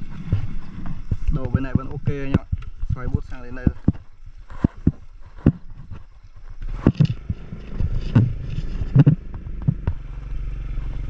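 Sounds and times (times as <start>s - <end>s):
thumps and knocks from bumps: 0.1s - 10.1s
motor scooter engine running: 6.8s - 11.0s.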